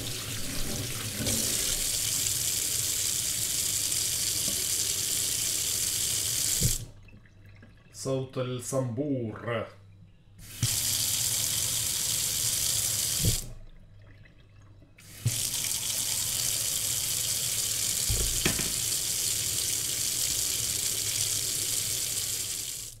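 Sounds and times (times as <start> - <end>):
faucet running into steel sink: 0.0 - 7.0, 10.4 - 13.5, 15.0 - 23.0.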